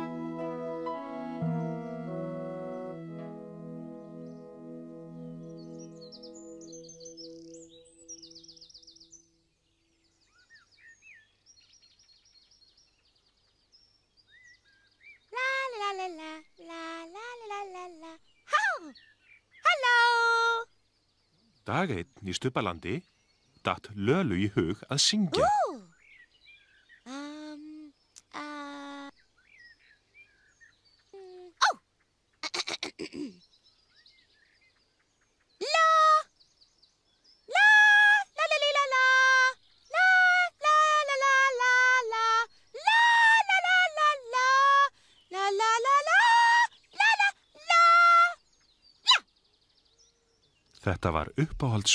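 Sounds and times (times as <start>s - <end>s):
held music notes: 0.0s - 8.6s
songbirds trilling and chirping: 0.3s - 51.9s
high voice singing wordless notes: 15.4s - 18.6s, 37.5s - 48.1s.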